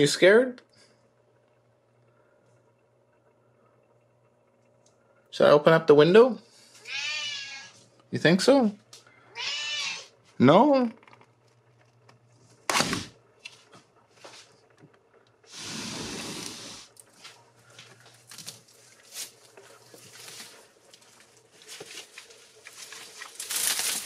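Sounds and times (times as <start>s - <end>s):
window scraping slide: 15.5s - 16.9s
elk tearing at branches: 18.3s - 24.0s.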